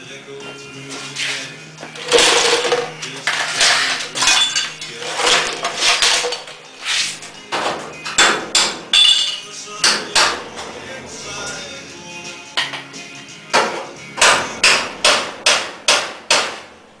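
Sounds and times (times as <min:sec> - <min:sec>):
metal knocks and clanks on sheet steel: 0:07.5 - 0:10.4, 0:13.5 - 0:16.7.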